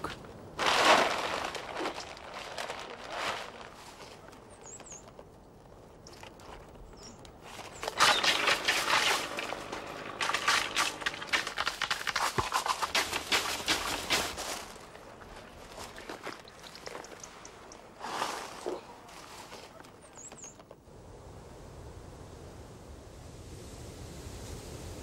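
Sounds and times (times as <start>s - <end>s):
leaves and twigs rustling: 0.0s - 20.8s
olives pattering and clicking: 6.0s - 20.8s.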